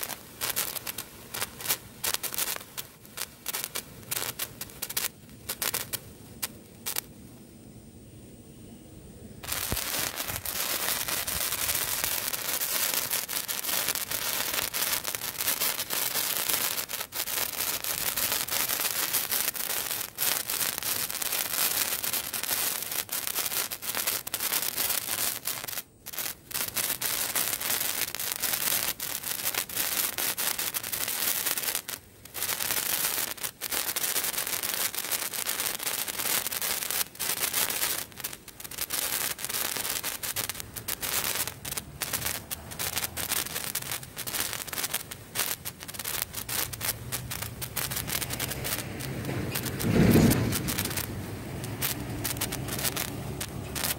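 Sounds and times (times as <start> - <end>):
sparklers fizzing and crackling: 0.0 - 7.2, 9.4 - 53.9.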